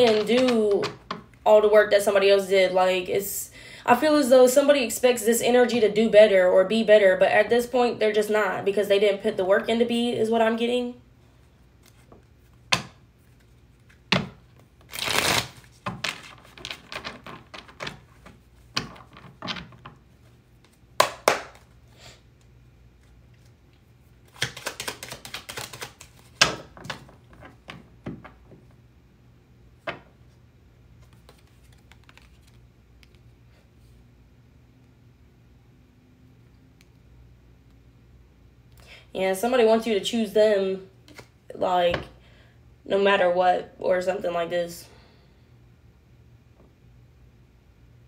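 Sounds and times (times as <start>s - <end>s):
cards shuffling: 0.0s - 1.2s, 11.8s - 21.8s, 24.2s - 28.6s, 31.0s - 33.3s.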